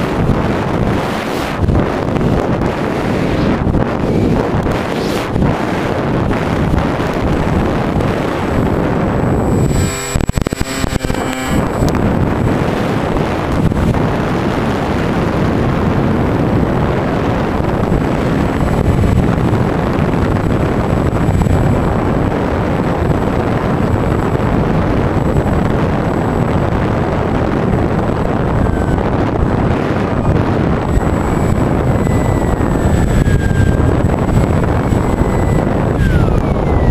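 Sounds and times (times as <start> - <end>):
high-pitched steady whine: 0.0 - 36.9
model plane motor and propeller drone: 0.0 - 36.9
wind rushing over camera: 0.0 - 36.9.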